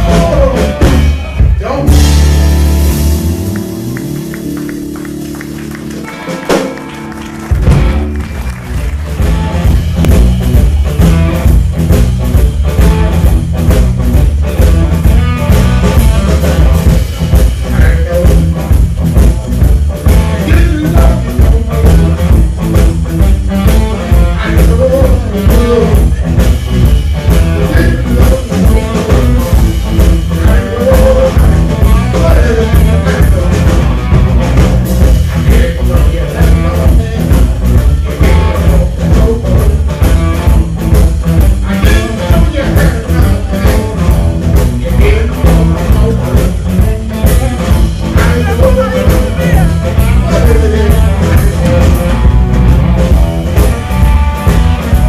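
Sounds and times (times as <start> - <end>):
person singing: 0.0 - 2.1, 17.6 - 18.6, 20.2 - 22.4, 23.1 - 26.4, 27.3 - 34.0, 35.3 - 40.2, 41.6 - 52.2
drum kit: 0.0 - 55.0
electric bass: 0.0 - 55.0
electric guitar: 0.0 - 55.0.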